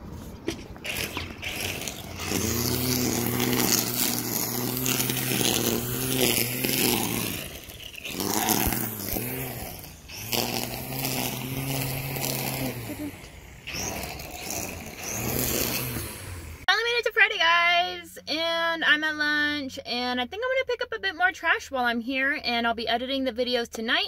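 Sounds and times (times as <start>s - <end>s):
string trimmer engine revving: 0.5s - 16.7s
trimmer line cutting weeds: 0.5s - 16.7s.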